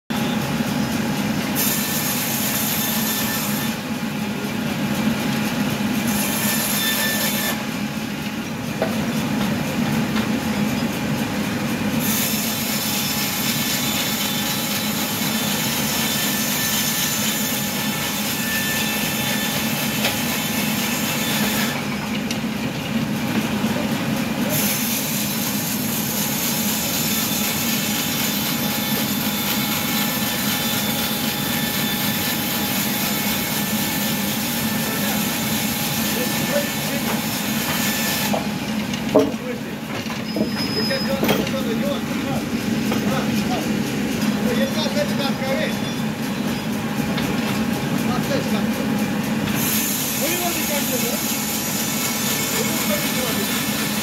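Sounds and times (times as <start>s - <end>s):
sawmill machine hum: 0.1s - 54.0s
saw cutting hiss: 12.0s - 21.9s, 24.4s - 38.6s, 47.8s - 54.0s.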